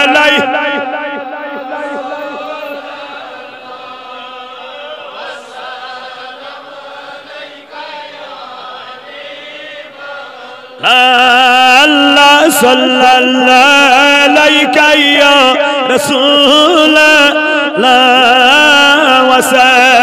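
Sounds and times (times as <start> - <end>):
man chanting into microphone: 0.0 - 5.6, 9.7 - 20.0
devotional chanting: 0.0 - 20.0.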